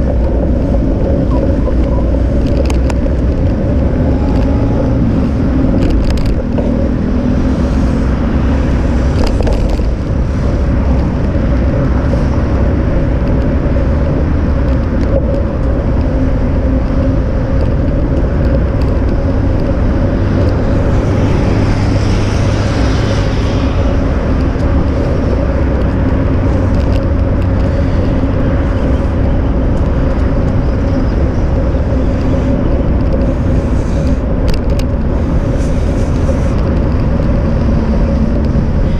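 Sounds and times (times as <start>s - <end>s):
constant hum: 0.0s - 38.9s
rolling rumble: 0.0s - 38.9s
wind rushing: 0.0s - 38.9s.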